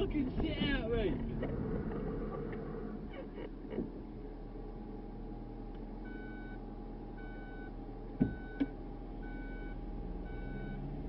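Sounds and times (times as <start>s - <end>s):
thump: 8.2s - 8.7s.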